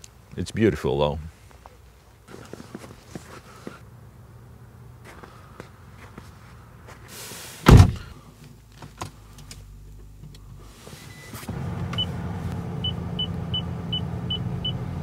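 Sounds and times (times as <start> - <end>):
car low hum: 1.7 - 15.0
car door slamming: 7.6 - 8.1.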